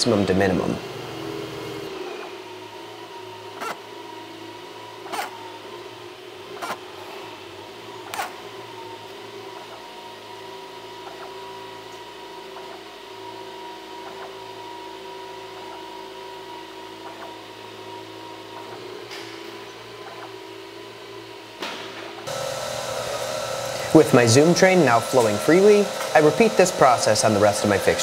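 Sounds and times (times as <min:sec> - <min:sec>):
cooling fans humming: 0:00.0 - 0:28.0
motor whining: 0:22.1 - 0:28.0.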